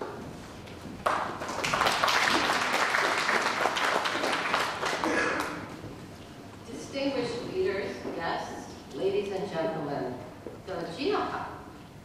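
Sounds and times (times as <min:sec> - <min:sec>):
audience applauding: 0:01.0 - 0:05.7.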